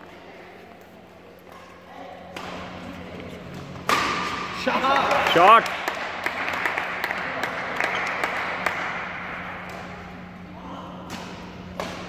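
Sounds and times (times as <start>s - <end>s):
steady low hum: 0.0s - 12.0s
rackets hitting shuttlecock: 2.3s - 2.9s, 3.5s - 4.6s, 7.8s - 12.0s
scattered applause: 4.8s - 9.1s.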